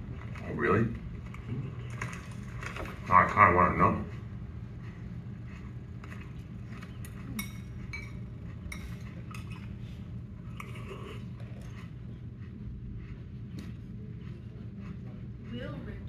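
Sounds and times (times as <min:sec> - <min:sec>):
steady low hum: 0:00.0 - 0:16.0
cutlery and dishes clinking: 0:07.2 - 0:09.7.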